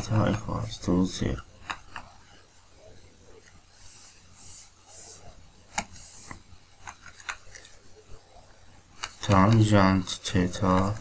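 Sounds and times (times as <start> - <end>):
stylus scratching on tablet: 0.0 - 8.2.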